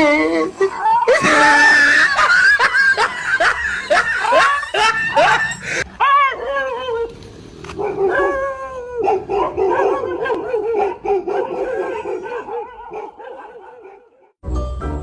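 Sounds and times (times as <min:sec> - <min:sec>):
dog howling and whining: 0:07.8 - 0:14.0.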